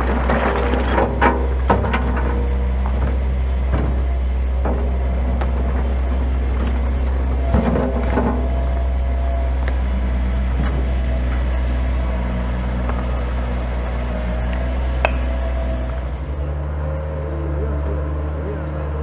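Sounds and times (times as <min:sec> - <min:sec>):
diesel engine running: 0:00.0 - 0:19.0
sharp clack of stone on stone: 0:15.0 - 0:15.3.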